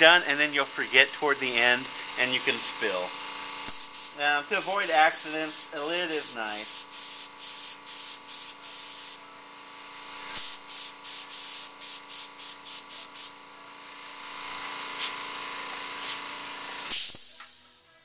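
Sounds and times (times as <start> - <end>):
airbrush spraying hissing bursts: 1.8 - 9.2, 10.3 - 13.4.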